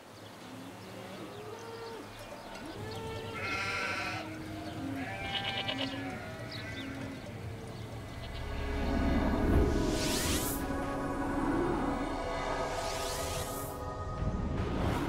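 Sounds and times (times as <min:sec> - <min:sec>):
goats bleating: 0:01.0 - 0:08.4.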